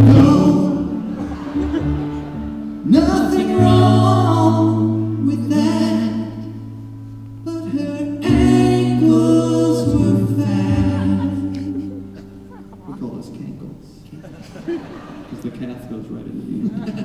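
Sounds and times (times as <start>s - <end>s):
men singing in harmony: 0.0s - 1.8s, 2.8s - 6.6s, 7.5s - 12.2s.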